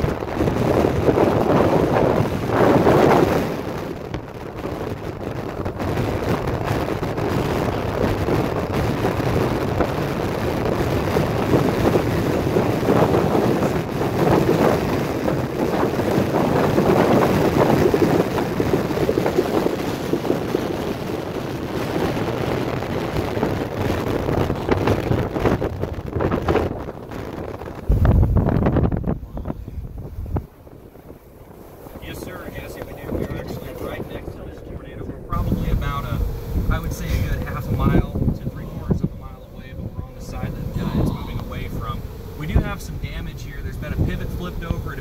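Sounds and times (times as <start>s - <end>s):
gusty wind buffeting microphone: 0.0s - 45.0s.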